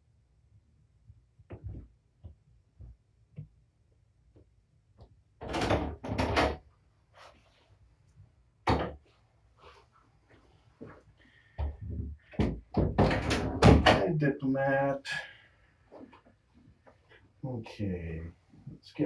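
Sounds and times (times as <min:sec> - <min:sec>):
door banging shut: 0:12.8 - 0:14.1.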